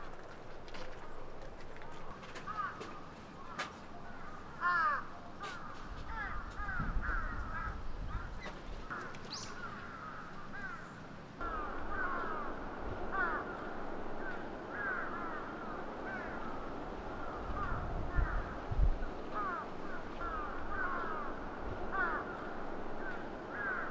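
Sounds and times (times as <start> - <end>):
birds calling: 0.0 - 23.9
faint low rumble: 11.4 - 23.9.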